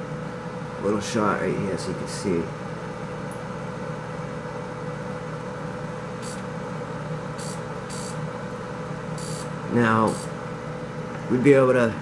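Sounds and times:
laser cutter humming: 0:04.8 - 0:11.7
high-pitched electrical crackles: 0:06.2 - 0:06.4, 0:07.4 - 0:08.2, 0:09.2 - 0:09.5.

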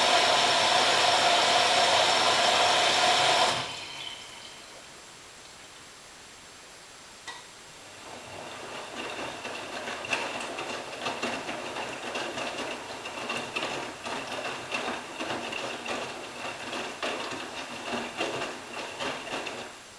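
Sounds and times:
washing machine motor whine: 0:00.0 - 0:04.8, 0:07.9 - 0:19.9
drum clatter: 0:08.6 - 0:19.8.

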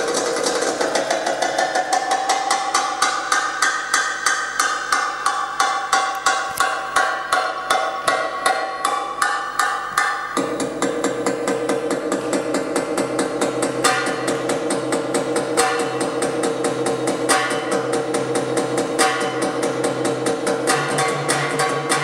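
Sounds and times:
dance music: 0:09.5 - 0:22.0.

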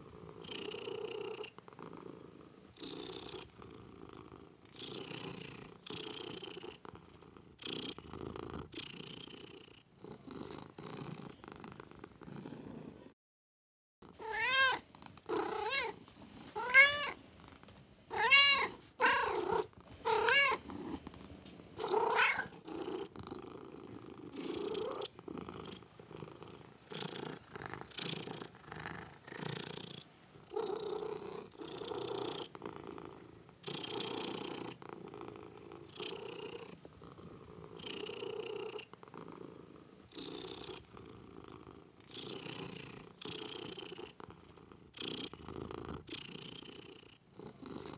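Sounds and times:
cat purring: 0:00.0 - 0:13.2, 0:14.0 - 0:47.9
cat meowing: 0:14.2 - 0:14.9, 0:15.6 - 0:16.0, 0:16.6 - 0:17.2, 0:18.1 - 0:20.6, 0:21.8 - 0:22.5.

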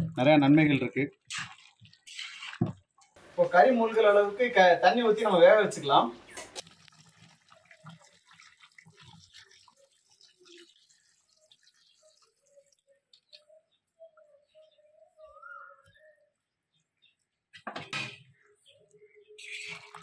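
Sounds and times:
water pouring and splashing: 0:00.0 - 0:03.7, 0:06.6 - 0:13.4, 0:19.4 - 0:20.0.

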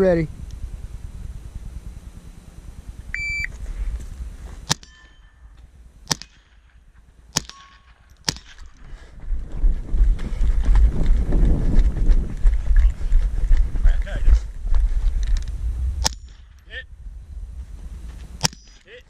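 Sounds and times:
wind rumble on microphone: 0:00.0 - 0:04.7, 0:08.6 - 0:19.0
shot timer beep: 0:03.1 - 0:03.5
ring of hit steel target: 0:04.7 - 0:05.5, 0:07.4 - 0:08.1, 0:18.4 - 0:19.0
rifle shots: 0:06.0 - 0:08.8.

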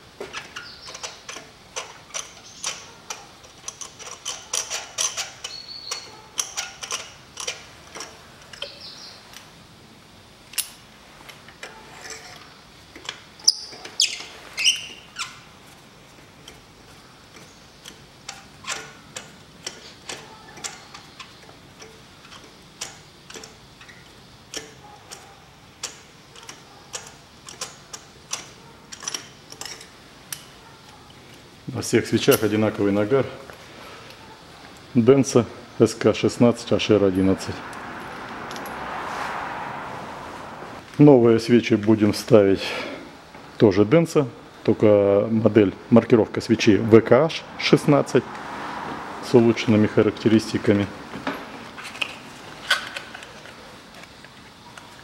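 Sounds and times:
ratchet wrench clicking: 0:00.3 - 0:08.9, 0:17.3 - 0:30.5.

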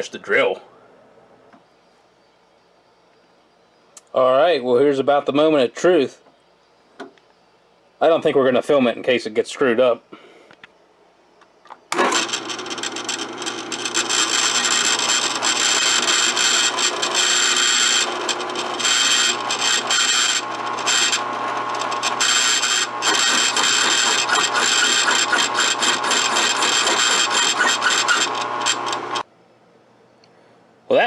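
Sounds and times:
drill press motor hum: 0:11.9 - 0:29.3
cutter scraping metal: 0:12.0 - 0:29.2.

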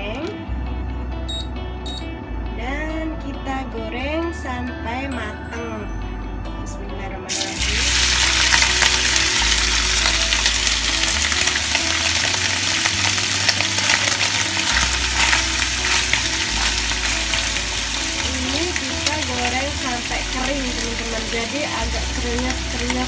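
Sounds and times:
meat sizzling in hot oil: 0:07.3 - 0:23.0.

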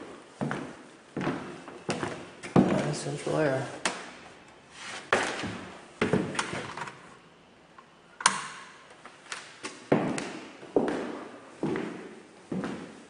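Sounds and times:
knocks and thumps in empty room: 0:05.1 - 0:06.8, 0:09.9 - 0:13.0.

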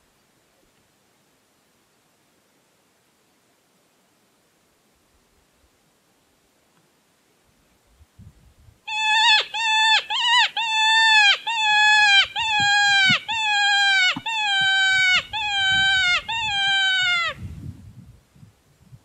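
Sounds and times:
predator call distress cries: 0:08.9 - 0:17.4.

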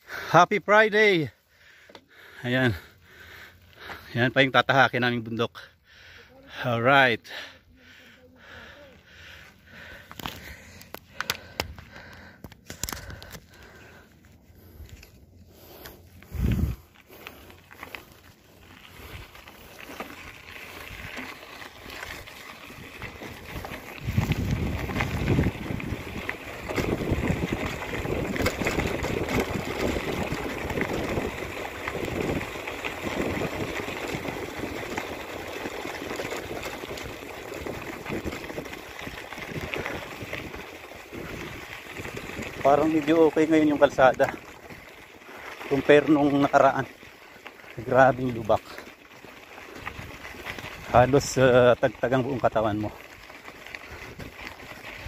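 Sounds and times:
bicycle tyres on gravel: 0:00.0 - 0:55.0
wind buffeting microphone: 0:16.3 - 0:16.9, 0:22.7 - 0:35.6, 0:36.4 - 0:42.7.

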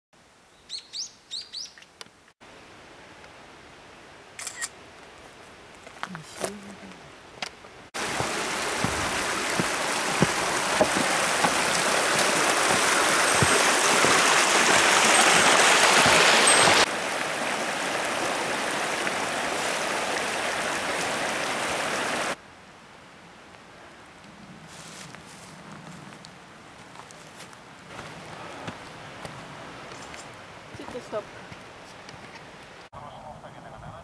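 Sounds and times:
footsteps on wooden plank bridge: 0:08.0 - 0:16.9, 0:26.8 - 0:32.4
stream rushing over rocks: 0:08.0 - 0:22.4, 0:27.9 - 0:32.9.

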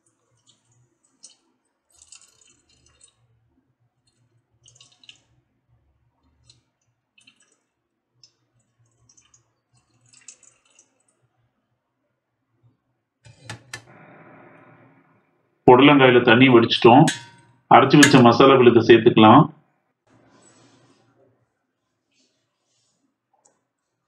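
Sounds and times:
wet pulp squishing in strainer: 0:00.0 - 0:11.2.

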